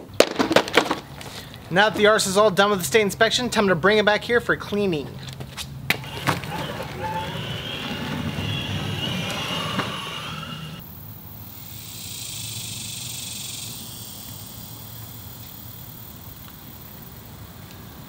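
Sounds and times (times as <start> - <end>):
car driving: 5.8 - 11.0
steady hiss: 7.2 - 18.0.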